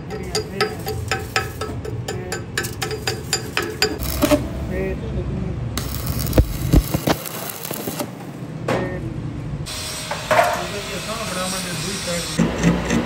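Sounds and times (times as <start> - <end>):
fast regular ticking: 0.0 - 4.3
arc welding crackling hiss: 2.7 - 4.4, 5.8 - 8.3, 9.7 - 12.4.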